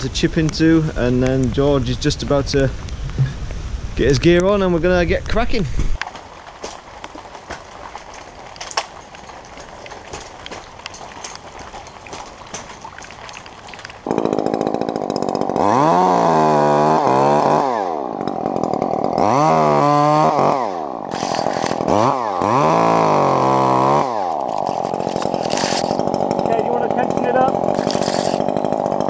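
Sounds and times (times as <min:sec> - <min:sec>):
chainsaw revving: 0:06.1 - 0:29.0.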